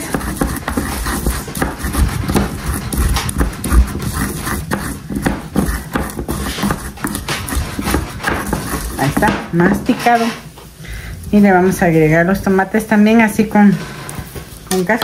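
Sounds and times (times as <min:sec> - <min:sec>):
wooden pestle pounding in clay bowl: 0:00.0 - 0:10.0.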